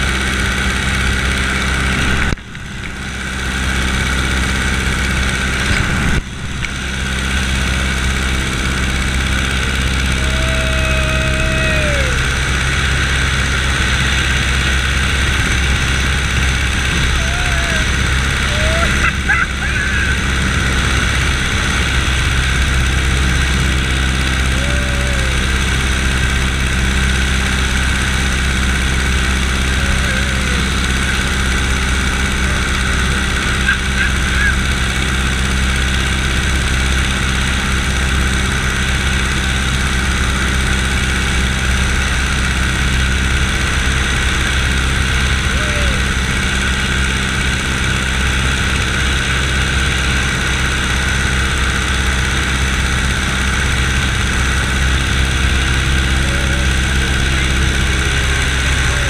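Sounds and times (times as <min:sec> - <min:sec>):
propeller plane engine drone: 0:00.0 - 0:59.0
wind rush on microphone: 0:04.8 - 0:06.9.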